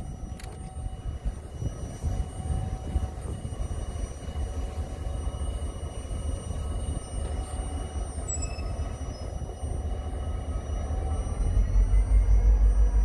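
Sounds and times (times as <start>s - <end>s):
locomotive diesel engine rumbling: 0.0s - 13.0s.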